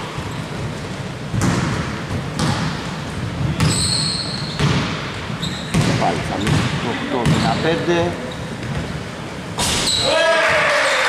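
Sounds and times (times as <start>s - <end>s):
basketball bouncing on hardwood: 1.3s - 2.8s, 4.6s - 5.0s, 5.7s - 7.5s.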